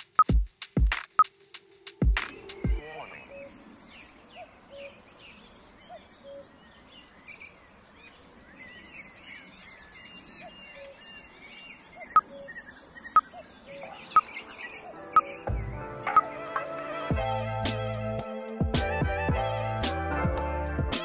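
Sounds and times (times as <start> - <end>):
soft hiss: 0.0 - 3.9
small birds chirping and trilling: 0.0 - 16.7.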